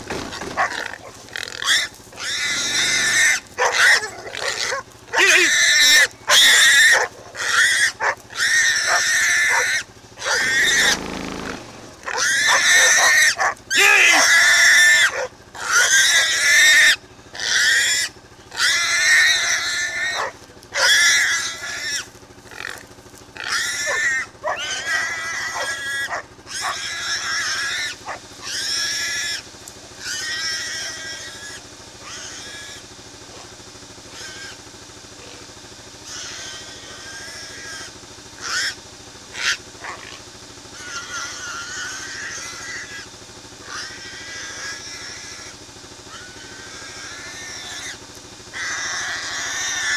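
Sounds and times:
pig squealing: 0.3s - 22.8s, 23.4s - 33.5s, 34.1s - 49.9s.

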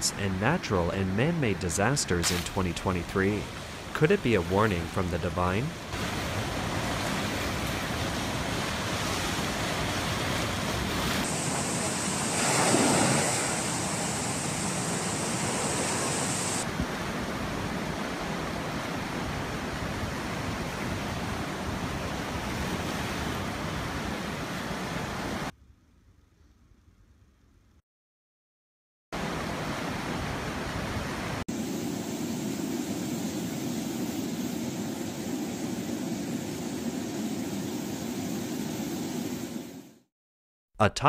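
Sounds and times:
floodwater rushing: 0.4s - 25.5s.

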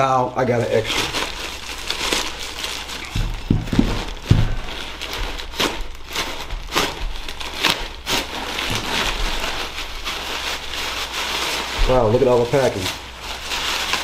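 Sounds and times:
plastic bag crinkling: 0.0s - 14.0s
dull thuds: 3.1s - 7.5s.

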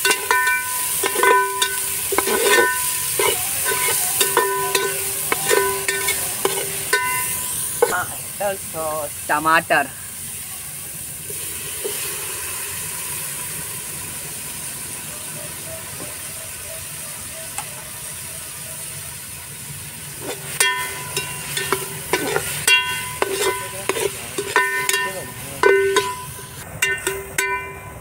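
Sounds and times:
vegetables sizzling in a pot: 0.0s - 28.0s
ladle knocking against pot: 20.6s - 27.8s.

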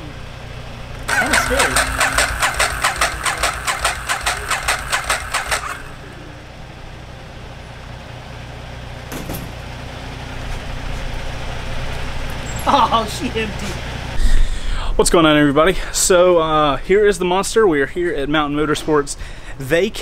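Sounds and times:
motorcycle engine running: 0.9s - 7.2s.

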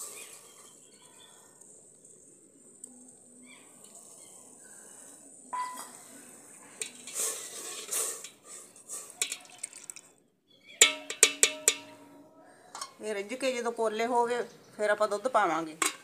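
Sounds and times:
ladle scraping metal pot: 6.7s - 10.0s, 10.8s - 12.1s, 12.7s - 13.0s.

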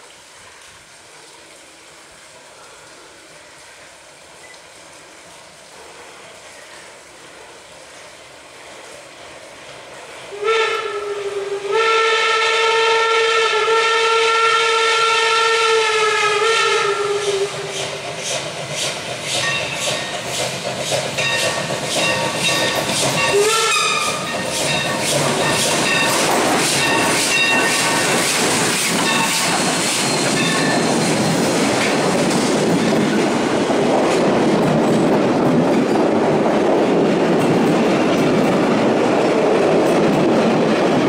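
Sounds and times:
steam locomotive whistle: 10.3s - 18.0s, 21.3s - 28.4s.

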